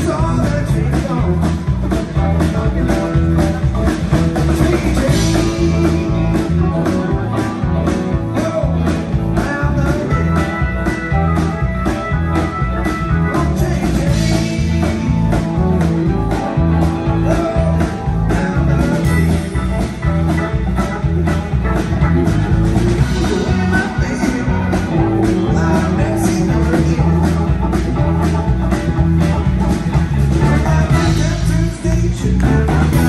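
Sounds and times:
drum kit beat: 0.0 - 33.0
electric bass: 0.0 - 33.0
electric guitars: 0.0 - 33.0
keyboards: 0.0 - 33.0.

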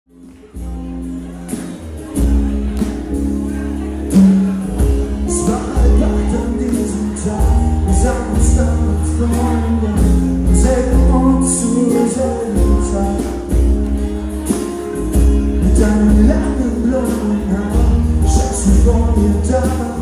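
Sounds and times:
band music with bass line: 0.1 - 20.0
person singing: 4.1 - 13.8, 14.6 - 20.0.

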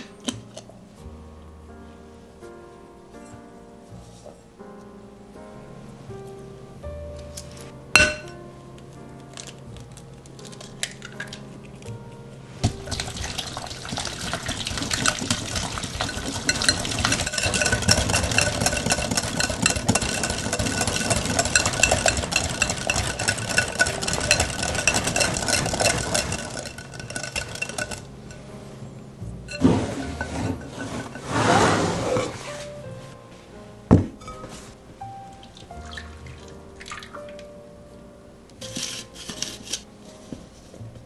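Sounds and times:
whisk scraping glass bowl: 12.7 - 28.5, 29.5 - 32.8.

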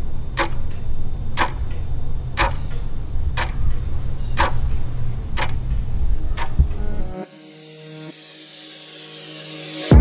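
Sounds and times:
clock-like ticking: 0.3 - 6.8.

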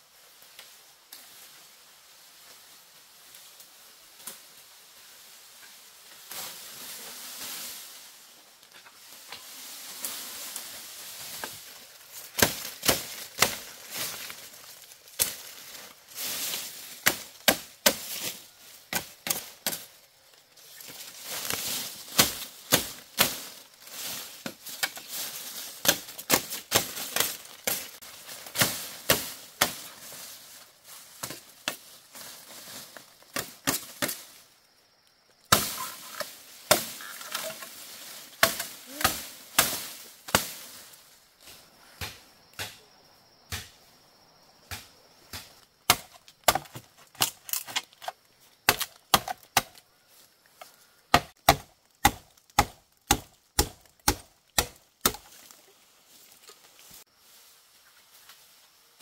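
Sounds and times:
bamboo cracking: 11.3 - 40.8, 44.6 - 49.9, 50.6 - 57.0.

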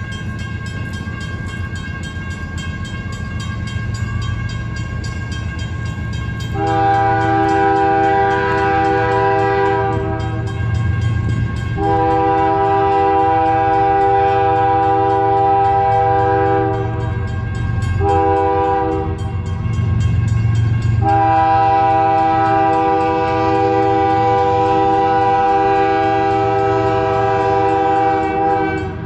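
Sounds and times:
locomotive air horn blasts: 6.4 - 20.0, 21.0 - 29.0.

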